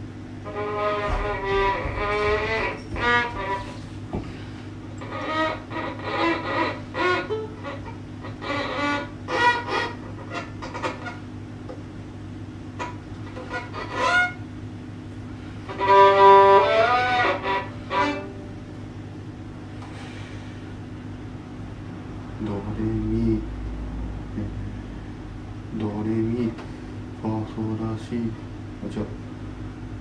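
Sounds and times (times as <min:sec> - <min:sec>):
steady low hum: 0:00.0 - 0:30.0
bowed violin: 0:00.4 - 0:04.2, 0:05.0 - 0:11.2, 0:12.8 - 0:14.4, 0:15.6 - 0:18.8.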